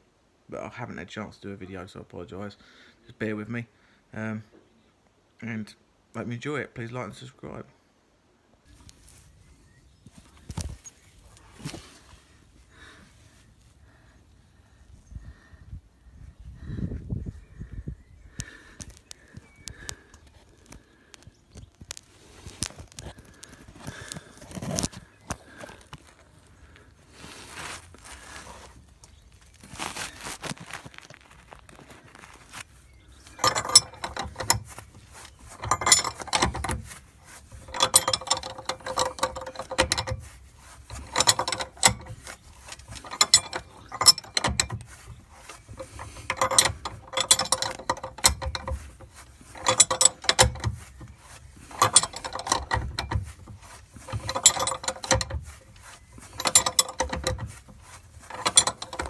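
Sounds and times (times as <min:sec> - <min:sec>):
ratchet spanner clicking: 0:54.0 - 0:59.0.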